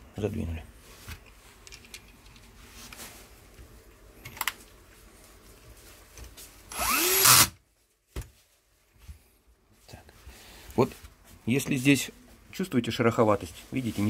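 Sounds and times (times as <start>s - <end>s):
cordless drill whirring: 6.7s - 7.6s.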